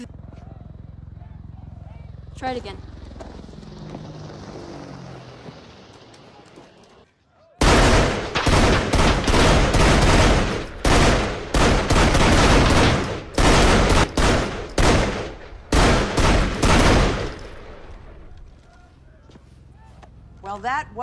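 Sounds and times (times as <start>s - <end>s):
pistol shots with echo: 7.6s - 17.6s.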